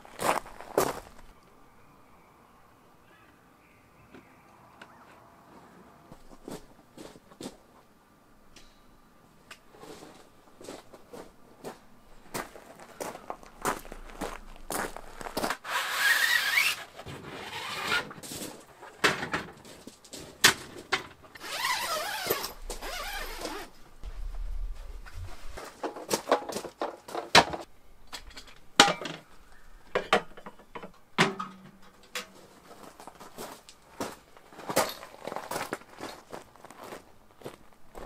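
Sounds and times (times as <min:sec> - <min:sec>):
rustling: 0:12.2 - 0:27.7.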